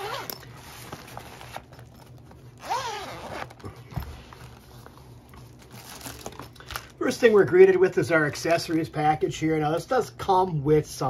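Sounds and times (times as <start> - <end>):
zipper rasping open: 0.0 - 3.8.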